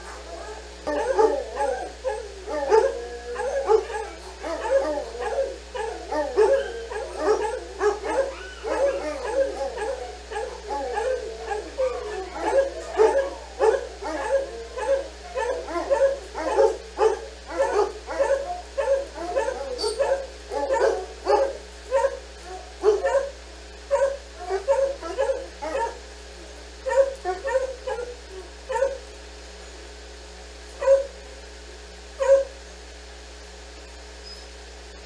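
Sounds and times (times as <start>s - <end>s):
dogs howl-barking: 0.0s - 29.1s, 30.8s - 31.2s, 32.2s - 32.6s.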